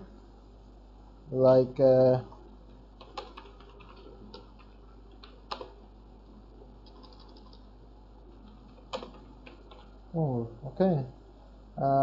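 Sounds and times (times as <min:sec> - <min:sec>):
faint keyboard typing: 0:02.2 - 0:07.7, 0:08.3 - 0:10.0.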